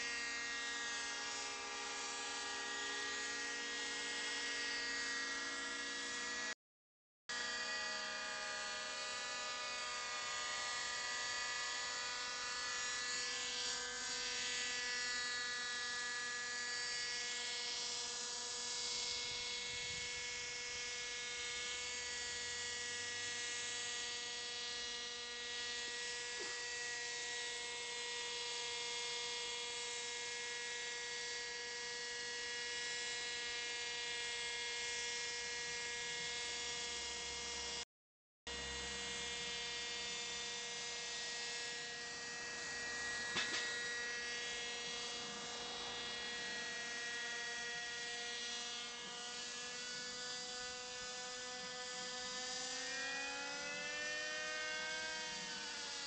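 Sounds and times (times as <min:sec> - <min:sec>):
model helicopter engine whine: 0:42.4 - 0:56.0.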